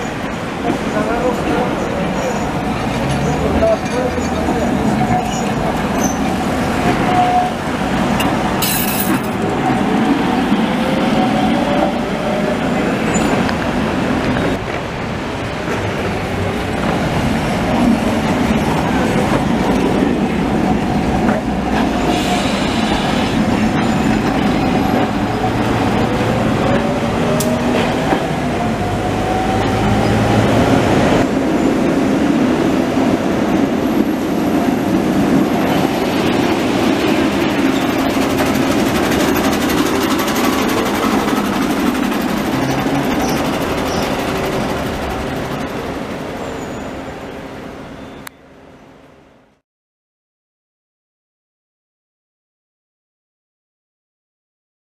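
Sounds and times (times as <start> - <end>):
tram wheels rumbling over rails: 0.0 - 49.4.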